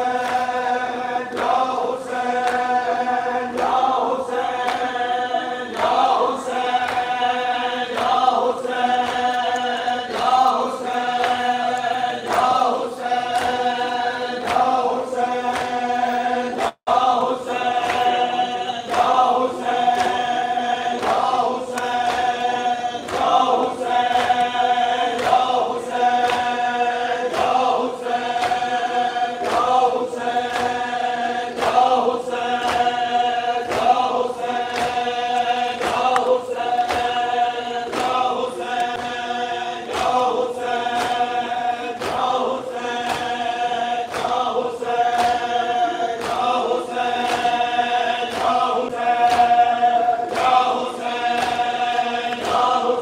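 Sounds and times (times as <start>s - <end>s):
crowd of men chanting: 0.0s - 53.0s
rhythmic chest-beating: 0.0s - 53.0s.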